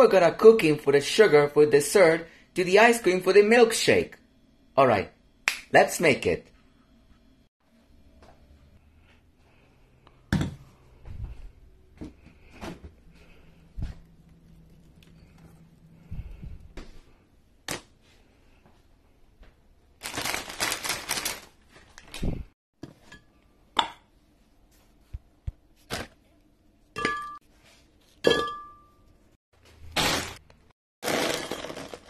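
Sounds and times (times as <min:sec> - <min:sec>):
plastic wrapper crinkling: 0:20.0 - 0:22.2
glass jar clinking: 0:27.0 - 0:27.4, 0:28.2 - 0:29.0.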